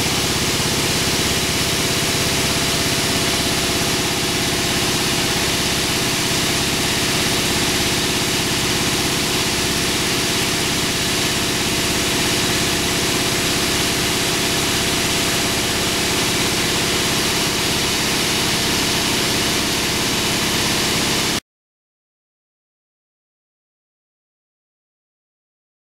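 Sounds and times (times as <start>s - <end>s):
machine drone: 0.0s - 21.4s.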